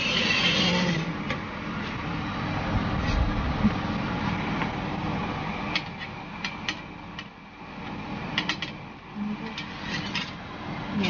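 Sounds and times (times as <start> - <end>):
metal trays sliding on oven rails: 0.0 - 1.2, 9.5 - 10.4
metallic clicks and scrapes: 9.5 - 10.4.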